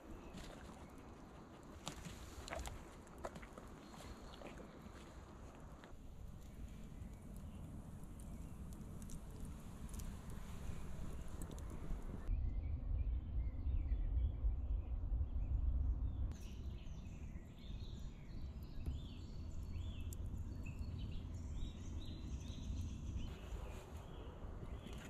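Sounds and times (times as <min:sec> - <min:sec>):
birds chirping: 0:00.0 - 0:12.3, 0:16.2 - 0:25.0
wood fire crackles: 0:01.3 - 0:12.3
steady low rumble: 0:03.6 - 0:25.0.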